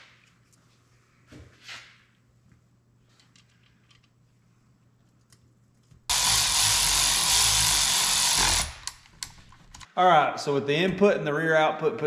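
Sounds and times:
small clicks of parts handled: 0:03.1 - 0:04.3.

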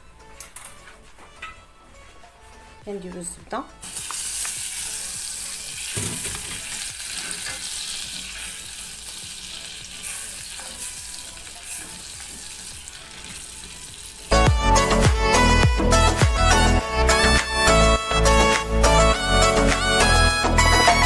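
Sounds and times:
butter sizzling and bubbling: 0:03.8 - 0:14.5
loud music: 0:13.8 - 0:21.0.

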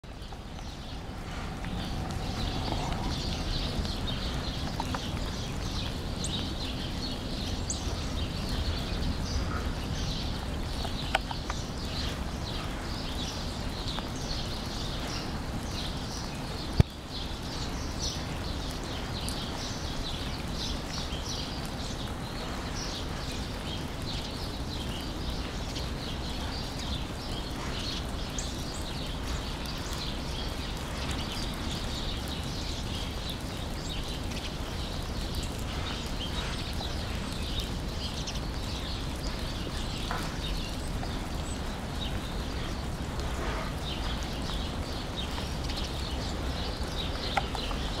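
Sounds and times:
steady low rumble: 0:00.0 - 0:15.9
small birds chirping: 0:00.0 - 0:48.0.

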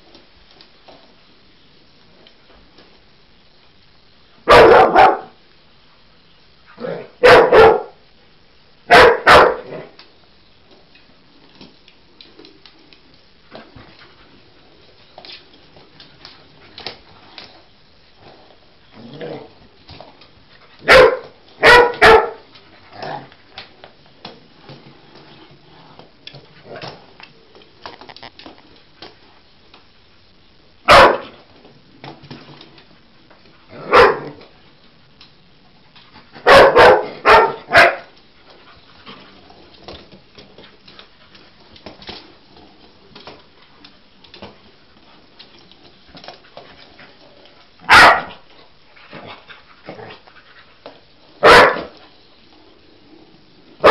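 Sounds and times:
dog barking: 0:04.5 - 0:05.4, 0:06.8 - 0:08.0, 0:08.9 - 0:09.8, 0:20.8 - 0:22.4, 0:30.9 - 0:31.3, 0:33.8 - 0:34.4, 0:36.4 - 0:38.1, 0:47.9 - 0:48.3, 0:51.4 - 0:51.9.

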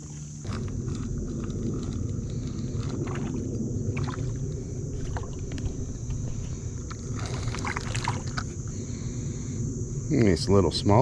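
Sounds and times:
fishing reel cranking rumble: 0:00.3 - 0:09.1.

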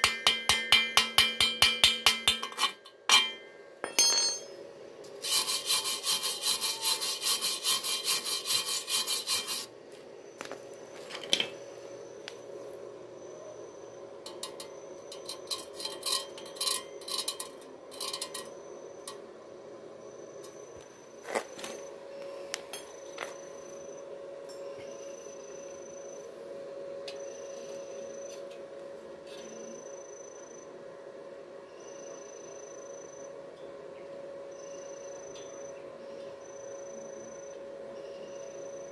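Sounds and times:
steady hum: 0:00.0 - 0:38.9
metallic scraping and clinking: 0:02.0 - 0:09.7, 0:14.2 - 0:19.2.

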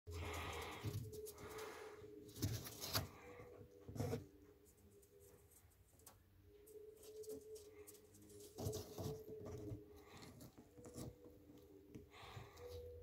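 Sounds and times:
papery rustling and scratching: 0:00.4 - 0:04.3, 0:07.0 - 0:11.3.

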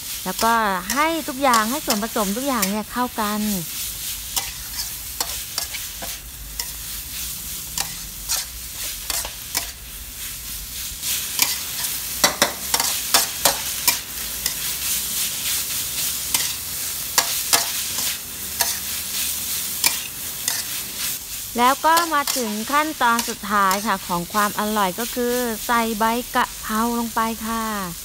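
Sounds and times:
food sizzling: 0:00.0 - 0:28.0
metal spatula scraping a wok: 0:00.3 - 0:03.4, 0:04.0 - 0:09.8, 0:11.0 - 0:16.6, 0:17.2 - 0:24.2.

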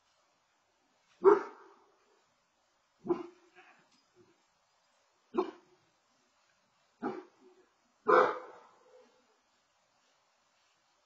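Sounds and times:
puppy barking: 0:01.2 - 0:01.8, 0:03.0 - 0:03.5, 0:05.4 - 0:05.7, 0:07.0 - 0:07.4, 0:08.1 - 0:09.2.

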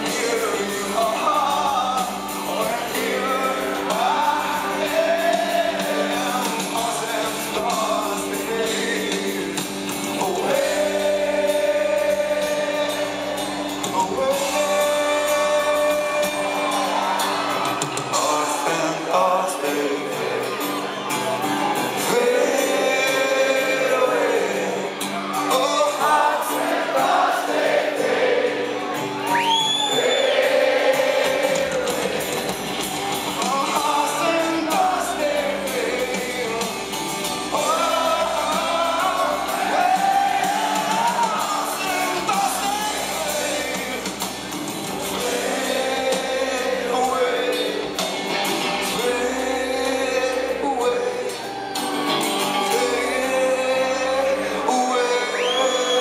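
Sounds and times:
man singing lead vocal: 0:00.0 - 0:32.6, 0:33.3 - 0:56.0
crowd singing along: 0:00.0 - 0:56.0
live rock band playing: 0:00.0 - 0:56.0
thin rising whistle: 0:29.2 - 0:30.4.

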